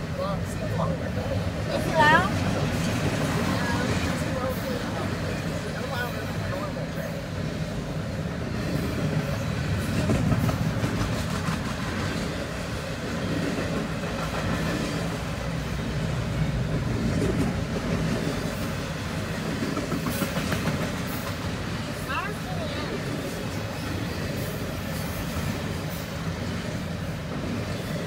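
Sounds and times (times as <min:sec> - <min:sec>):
freight train rumbling past: 0:00.0 - 0:28.0
train wheels clicking over rail: 0:19.6 - 0:21.5.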